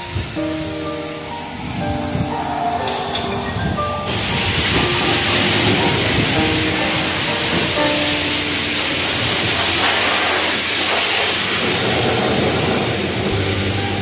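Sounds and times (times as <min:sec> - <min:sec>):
pressure washer jet hissing on metal: 0:04.1 - 0:13.9.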